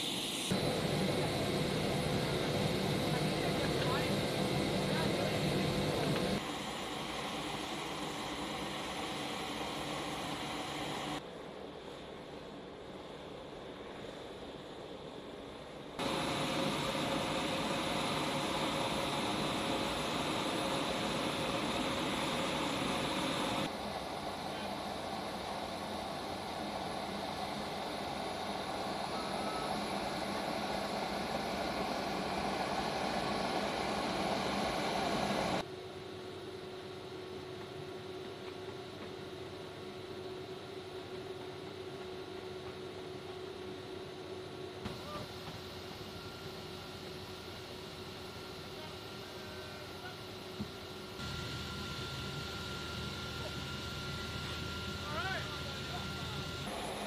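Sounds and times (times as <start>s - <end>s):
aircraft engine roar: 0.0s - 35.7s, 44.8s - 57.0s
aircraft noise rushing: 16.0s - 35.6s.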